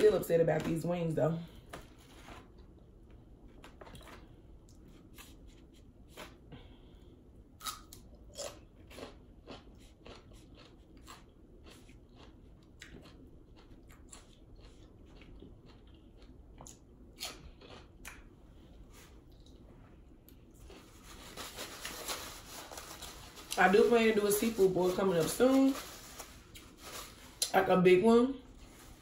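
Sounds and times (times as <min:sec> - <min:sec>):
crunching chewing: 0:07.6 - 0:18.3.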